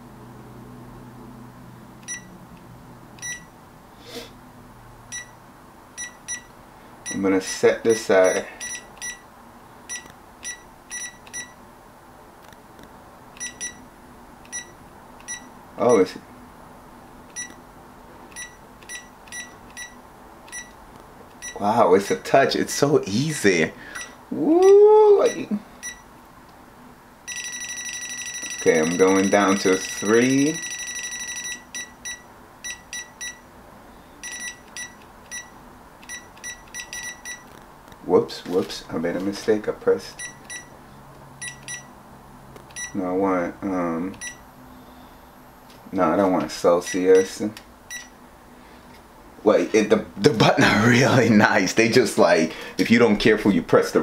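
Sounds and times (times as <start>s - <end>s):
short high beeps: 2.0s - 2.3s, 13.4s - 13.8s, 47.9s - 48.1s
control panel beeps: 2.0s - 2.4s, 3.2s - 3.5s, 5.1s - 5.4s, 6.0s - 6.5s, 7.9s - 9.3s, 9.9s - 11.6s, 13.4s - 13.8s, 14.5s - 16.1s, 17.3s - 17.6s, 18.3s - 20.8s, 21.4s - 21.6s, 25.2s - 26.1s, 27.3s - 33.4s, 34.2s - 37.5s, 40.2s - 40.7s, 41.4s - 41.9s, 42.7s - 43.0s, 44.2s - 44.4s, 46.8s - 48.2s.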